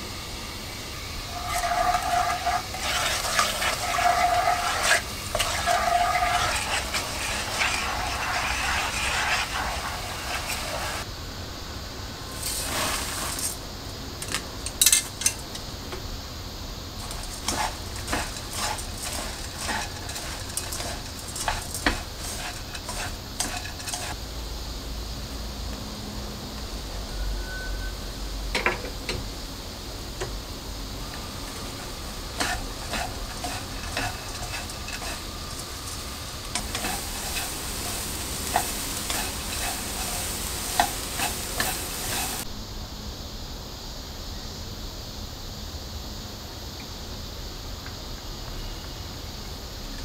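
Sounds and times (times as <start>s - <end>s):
sauce bubbling and sizzling in pan: 0.0s - 11.1s, 12.2s - 13.7s, 16.9s - 24.2s, 30.9s - 42.5s
spatula scraping and clicking in pan: 1.3s - 11.0s, 17.0s - 24.2s, 31.1s - 42.4s.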